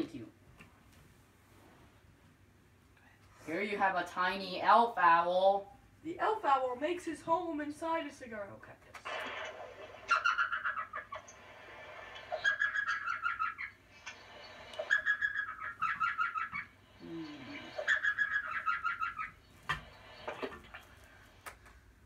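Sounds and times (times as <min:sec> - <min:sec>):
owl yipping calls: 0:09.9 - 0:20.9.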